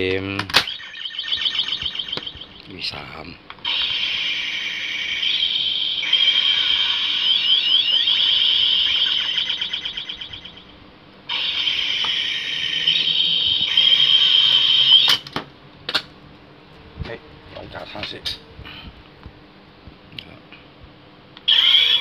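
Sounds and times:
high wavering electronic tone: 0:00.6 - 0:15.2.

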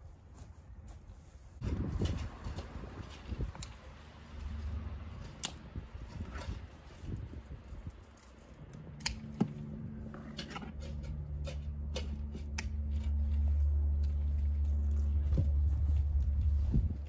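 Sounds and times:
low steady hum: 0:01.6 - 0:17.0
pruning shears snipping stems: 0:05.1 - 0:05.8, 0:08.2 - 0:09.7.

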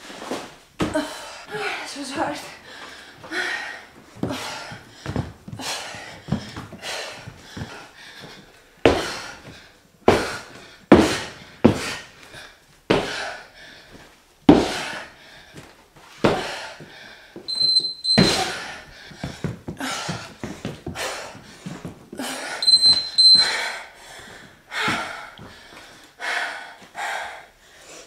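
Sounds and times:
exercise thumps: 0:00.4 - 0:01.4, 0:02.0 - 0:13.4, 0:14.4 - 0:23.7
heavy breathing: 0:00.9 - 0:17.6, 0:18.2 - 0:28.0
interval timer beeping: 0:17.5 - 0:18.5, 0:22.6 - 0:23.6.

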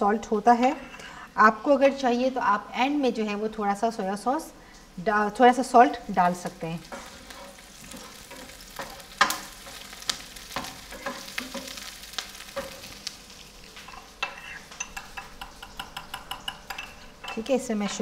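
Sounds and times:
onions sizzling in oil: 0:05.1 - 0:18.0
metal spoon clinking on bowl: 0:13.9 - 0:18.0
wooden spatula knocking on pan: 0:14.9 - 0:16.9.

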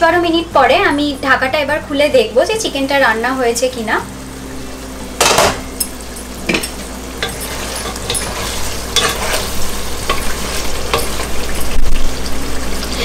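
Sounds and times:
low sizzle: 0:00.0 - 0:13.0
wooden spatula scraping a pot: 0:07.3 - 0:11.3.

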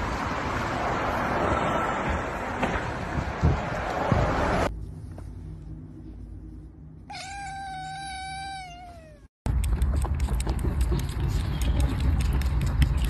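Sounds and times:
kitten meowing: 0:07.1 - 0:09.3.

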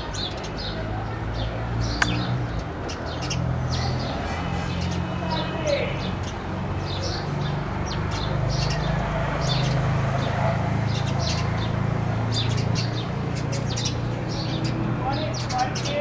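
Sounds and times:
sparrows chirping: 0:00.0 - 0:16.0.

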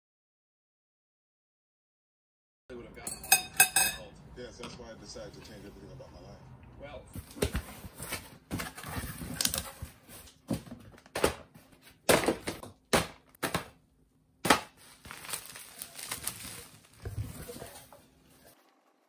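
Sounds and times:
packing paper crinkling: 0:07.9 - 0:10.3, 0:14.7 - 0:17.9.

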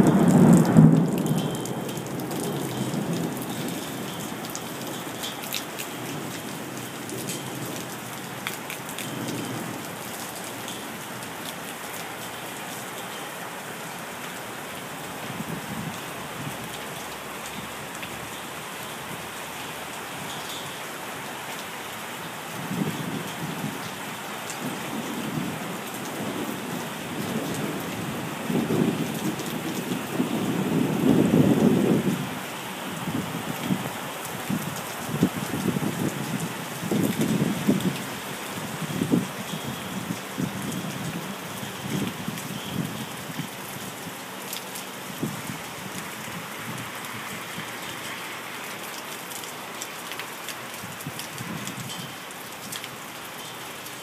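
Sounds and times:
thunder rumbling: 0:00.0 - 0:04.2
rain drops ticking: 0:00.0 - 0:54.0
steady rain: 0:00.0 - 0:54.0.

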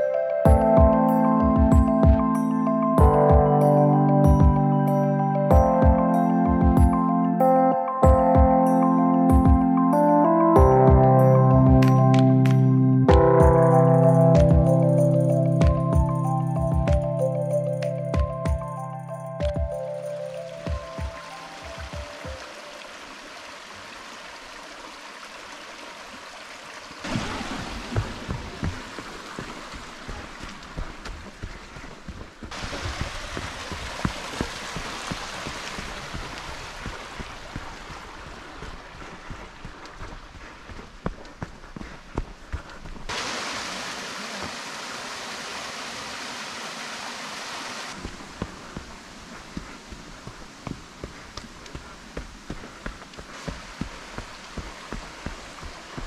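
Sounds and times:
waterfall splashing: 0:19.6 - 0:40.7, 0:43.1 - 0:56.0
creek rushing: 0:19.7 - 0:41.0, 0:43.1 - 0:56.0
footsteps thudding on trail: 0:27.1 - 0:43.2, 0:48.0 - 0:56.0.

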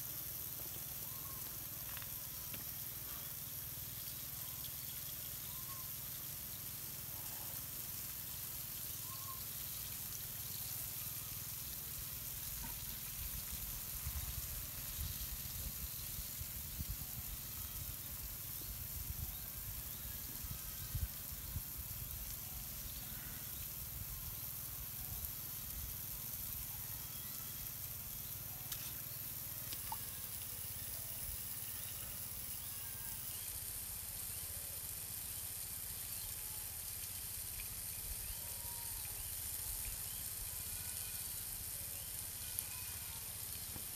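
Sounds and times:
outdoor background hiss: 0:00.0 - 0:43.9.

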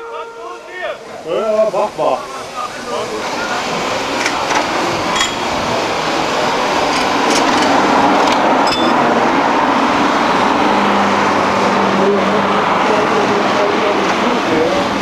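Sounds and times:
steam hiss: 0:00.5 - 0:08.6.

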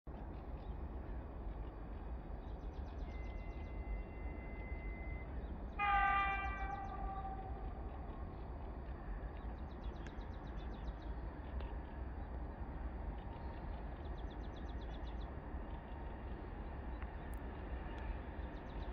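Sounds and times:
locomotive horn blast: 0:03.8 - 0:07.7.

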